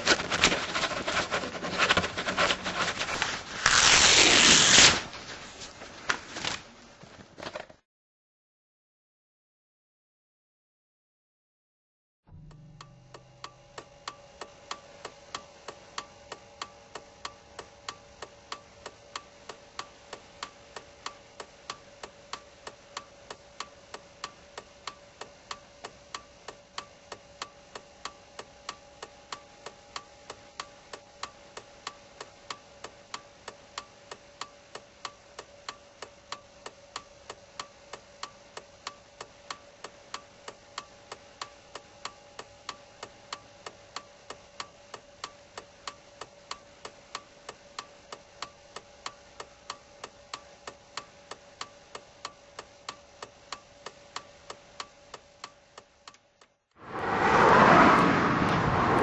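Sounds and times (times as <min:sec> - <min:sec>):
faint steady hum: 0:12.3 - 0:56.8.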